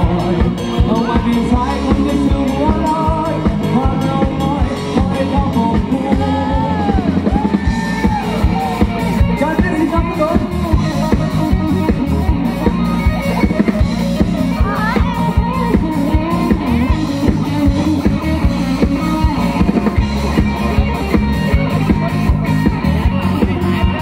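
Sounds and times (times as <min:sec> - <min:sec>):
bass guitar: 0:00.0 - 0:24.0
drum kit beat: 0:00.0 - 0:24.0
electric guitar: 0:00.0 - 0:24.0.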